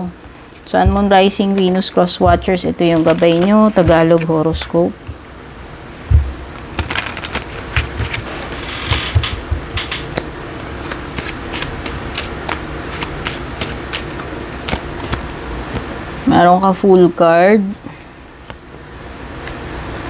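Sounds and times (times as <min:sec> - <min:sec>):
cards being shuffled: 0:00.5 - 0:05.2, 0:06.6 - 0:15.9
soft low thumps: 0:00.7 - 0:02.7, 0:06.0 - 0:06.5, 0:08.9 - 0:09.8.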